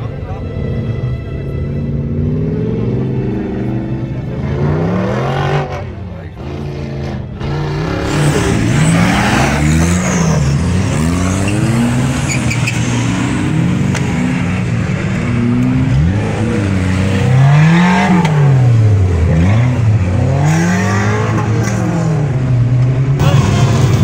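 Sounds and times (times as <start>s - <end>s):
engine revving hard: 4.4s - 14.4s, 15.4s - 22.3s.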